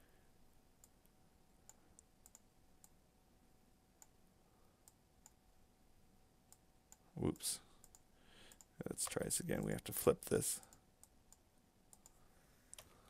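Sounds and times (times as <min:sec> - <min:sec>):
computer mouse clicks: 0:01.6 - 0:03.0, 0:06.5 - 0:09.2, 0:10.7 - 0:12.9.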